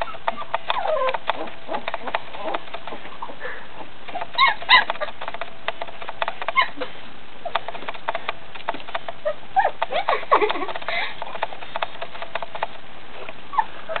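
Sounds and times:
puppies squeaking and whining: 0:00.0 - 0:05.4, 0:06.3 - 0:07.9, 0:09.0 - 0:12.2, 0:13.2 - 0:14.0.

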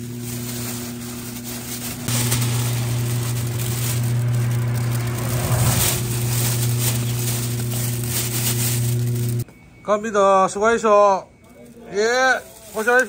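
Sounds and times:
grainy rustle of tumbling bait: 0:00.0 - 0:09.4, 0:12.4 - 0:13.0
mixing machine motor humming: 0:00.0 - 0:09.4.

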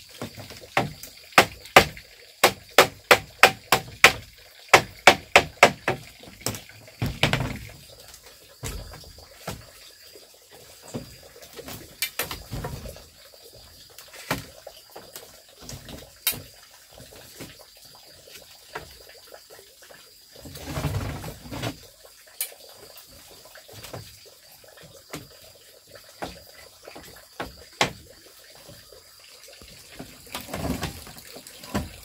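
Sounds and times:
sharp knocks and clicks: 0:00.2 - 0:07.7.

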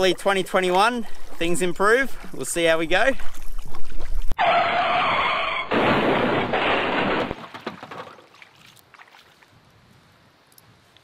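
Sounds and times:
shallow water splashing: 0:00.2 - 0:04.4, 0:06.6 - 0:09.6.

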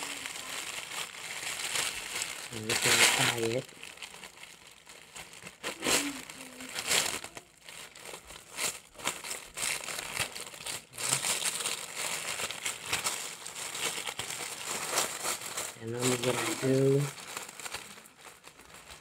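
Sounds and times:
plastic film crinkling: 0:00.0 - 0:19.0.

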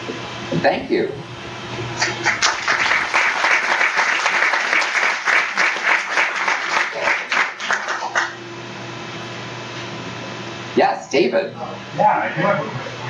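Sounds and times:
audience applauding: 0:02.0 - 0:08.4.

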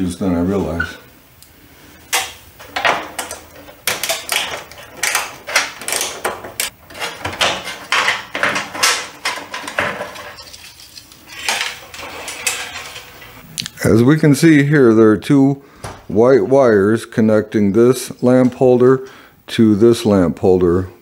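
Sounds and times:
metal clicking and rattling: 0:02.1 - 0:10.7.

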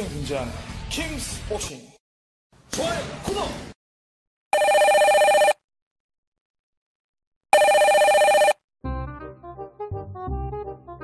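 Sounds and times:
telephone ringing electronic trill: 0:04.6 - 0:05.6, 0:07.6 - 0:08.6.

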